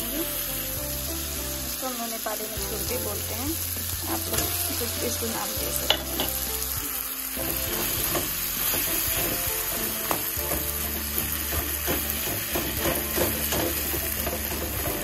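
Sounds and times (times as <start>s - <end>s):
vegetables sizzling in pan: 0.0s - 15.0s
metal spatula scraping pan: 7.4s - 15.0s.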